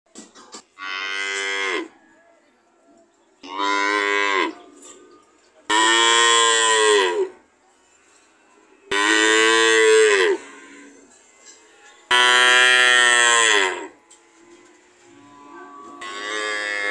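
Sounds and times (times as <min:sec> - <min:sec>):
cattle mooing: 0:00.8 - 0:01.9, 0:05.7 - 0:07.4, 0:08.9 - 0:11.0, 0:12.1 - 0:16.9.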